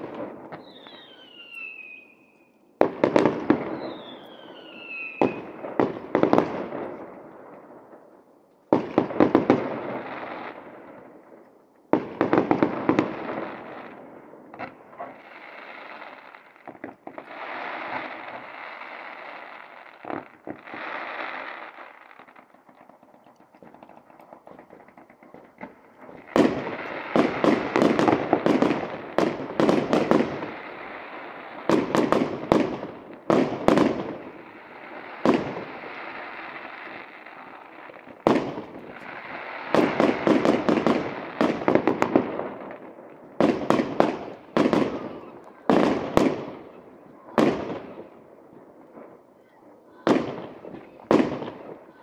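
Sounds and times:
fountain firework hissing and crackling: 14.6 - 48.1
aerial fireworks banging: 22.8 - 30.6, 38.1 - 42.6.

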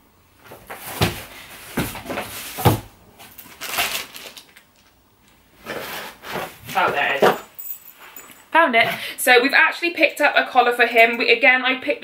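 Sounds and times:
rustling plastic and cardboard: 0.4 - 7.5.

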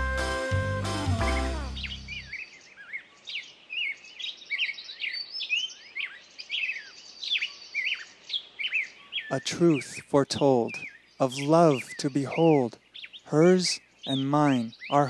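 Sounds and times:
music: 0.0 - 2.3
songbirds chirping: 0.0 - 15.0.

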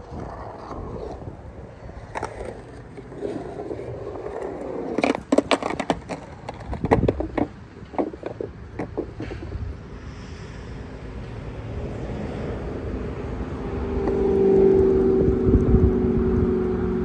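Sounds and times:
skateboard clacking on concrete: 0.0 - 9.7
skateboard wheels rolling on concrete: 0.0 - 17.0.

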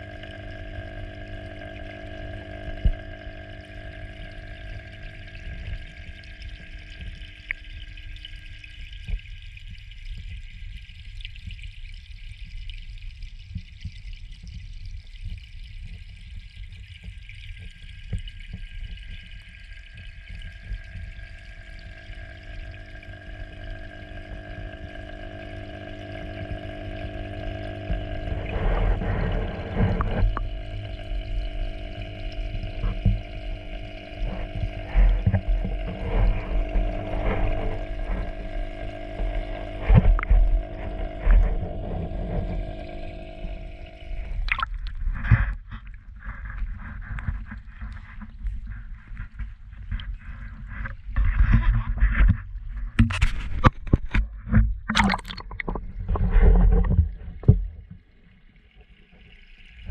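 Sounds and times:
low water rumble: 0.0 - 59.9
submersible water pump humming: 0.0 - 59.9
water sloshing and bumps: 26.2 - 59.3.

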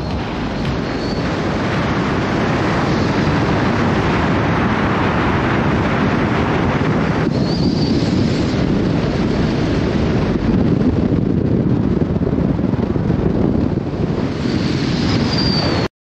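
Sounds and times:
wind buffeting microphone: 0.0 - 15.9
faint high whistle: 15.3 - 15.9.

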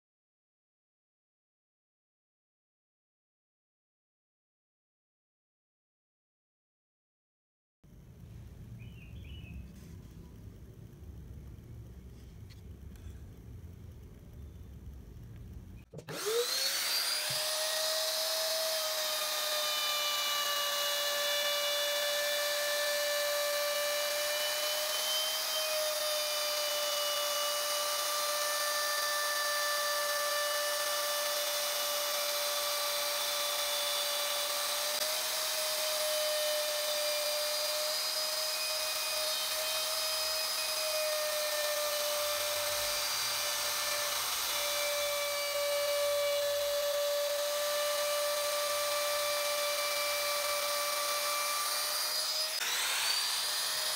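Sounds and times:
electric router whining: 16.0 - 53.9.

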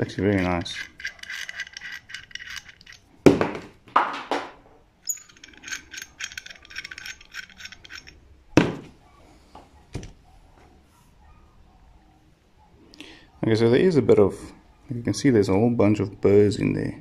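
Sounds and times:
metal fittings clinking and clicking: 0.0 - 3.1, 5.0 - 8.2
sharp knocks: 3.3 - 4.6.

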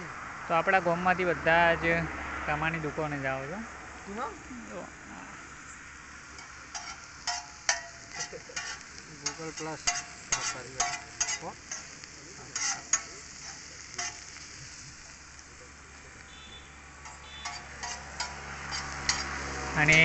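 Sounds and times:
vegetables sizzling: 2.5 - 20.0
spatula scraping a griddle: 6.3 - 15.4, 16.4 - 20.0.

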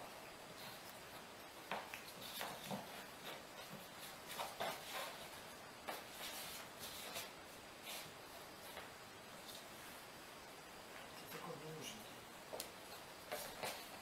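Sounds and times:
footsteps on laminate floor: 0.7 - 7.3, 12.5 - 14.0.

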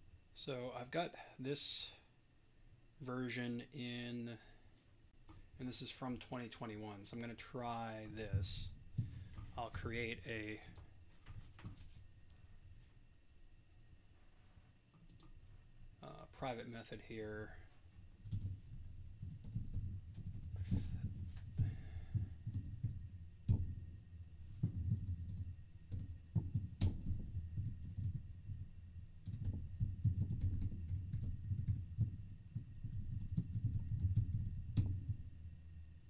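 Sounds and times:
typing on computer keyboard: 18.2 - 23.8, 24.6 - 28.6, 29.2 - 35.2.

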